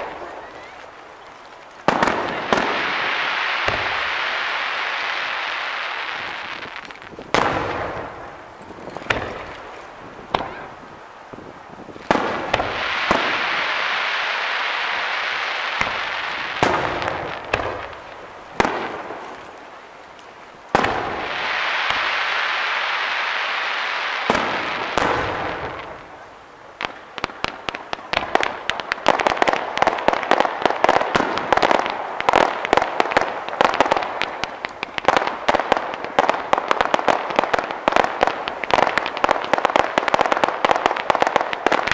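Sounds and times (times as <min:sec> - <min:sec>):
firework hiss: 0:00.0 - 0:41.9
firework shells bursting: 0:01.6 - 0:10.6.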